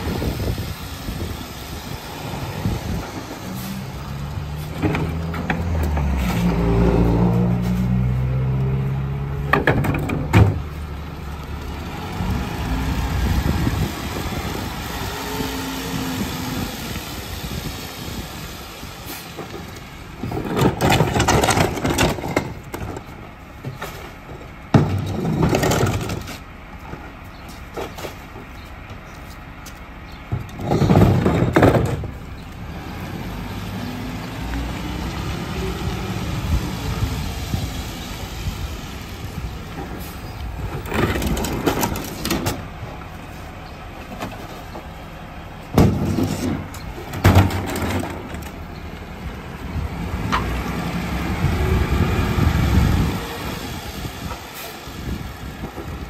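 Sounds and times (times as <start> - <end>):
garbage truck engine revving: 0.0 - 23.1, 30.5 - 56.0
noisy rushes and clatters: 19.4 - 23.1.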